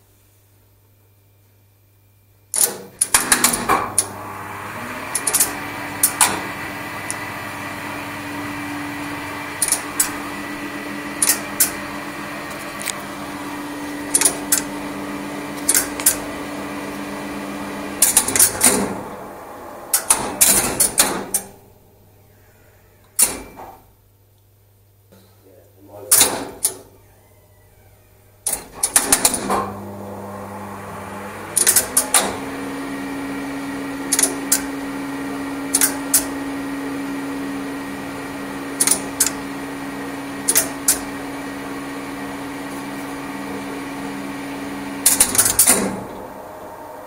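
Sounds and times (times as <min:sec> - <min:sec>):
faint mains hum: 0:00.0 - 0:45.0
lift motor hum: 0:02.6 - 0:24.8, 0:25.7 - 0:47.0
relays clattering: 0:31.5 - 0:32.4
single relay clicks: 0:34.1 - 0:34.7, 0:35.7 - 0:36.3, 0:38.8 - 0:39.4.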